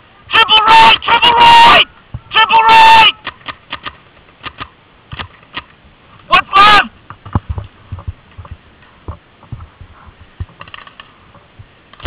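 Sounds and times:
camera being jostled thumps: 0:03.2 - 0:05.8, 0:07.0 - 0:12.0.

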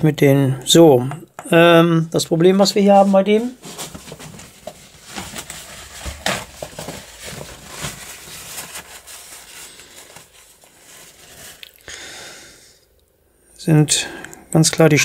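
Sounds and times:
paper towel crinkling: 0:02.4 - 0:11.8.

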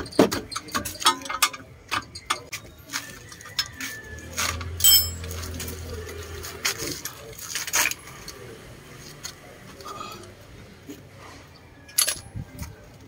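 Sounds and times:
metal sockets clinking: 0:04.8 - 0:05.4.

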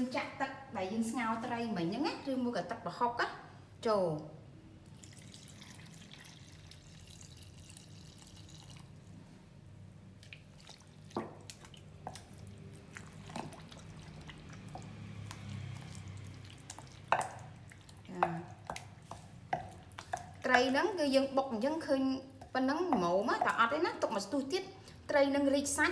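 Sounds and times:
liquid pouring into mortar: 0:04.8 - 0:09.1, 0:10.2 - 0:20.5
wooden pestle knocking in mortar: 0:18.1 - 0:20.7.

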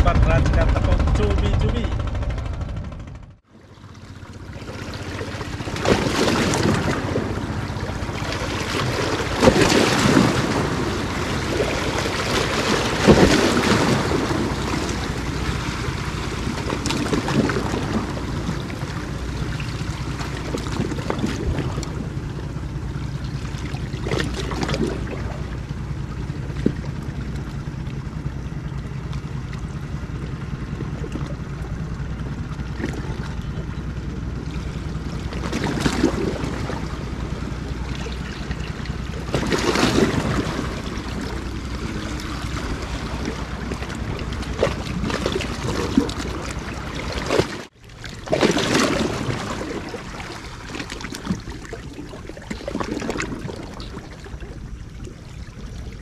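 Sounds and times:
steady low hum: 0:00.0 - 0:56.0
waves washing against rocks: 0:04.7 - 0:22.2, 0:35.2 - 0:54.8.

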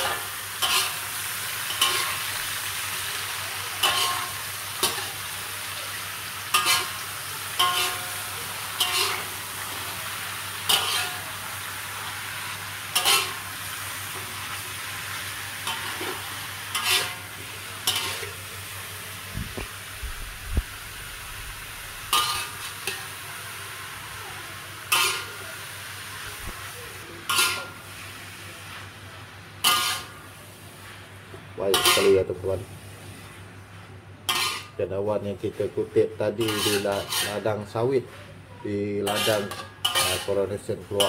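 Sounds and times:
spatula scraping a pan: 0:00.0 - 0:02.6, 0:03.7 - 0:05.2, 0:06.5 - 0:07.0, 0:07.6 - 0:09.8, 0:10.7 - 0:11.2, 0:12.9 - 0:13.4, 0:15.6 - 0:17.2, 0:17.8 - 0:18.3, 0:22.1 - 0:23.0, 0:24.9 - 0:25.4, 0:27.3 - 0:27.8, 0:29.6 - 0:30.1, 0:31.7 - 0:32.2, 0:33.1 - 0:34.8, 0:36.4 - 0:38.3, 0:39.0 - 0:41.0
mushrooms sizzling in oil: 0:00.0 - 0:37.9, 0:38.6 - 0:41.0.

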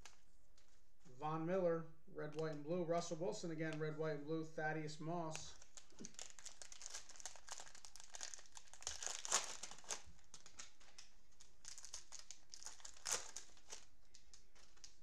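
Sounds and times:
plastic wrappers crinkling: 0:05.3 - 0:15.0.

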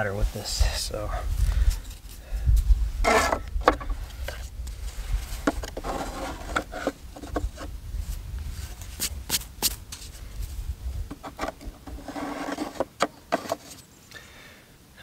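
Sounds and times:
wooden parts rubbing and scraping: 0:03.0 - 0:13.8.

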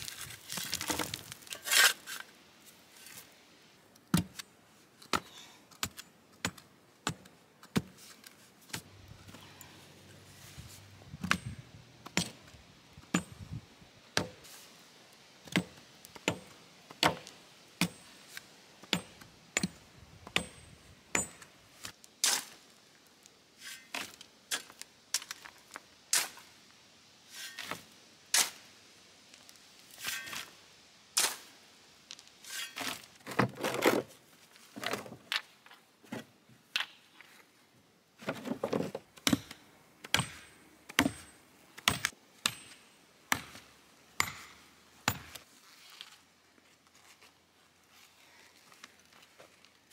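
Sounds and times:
shovel scraping dirt: 0:00.0 - 0:03.4, 0:15.4 - 0:22.8, 0:23.6 - 0:26.6, 0:27.2 - 0:28.8, 0:29.9 - 0:31.6, 0:32.2 - 0:35.2
sledgehammer thuds tamping soil: 0:04.1 - 0:04.4, 0:11.1 - 0:14.5, 0:38.2 - 0:45.4.

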